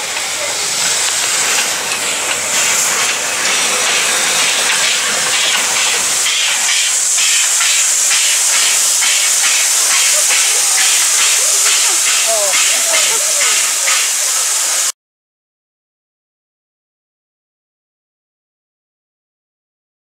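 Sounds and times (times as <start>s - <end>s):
steam locomotive hissing: 0.0s - 14.9s
rhythmic running gear beat: 1.2s - 14.1s.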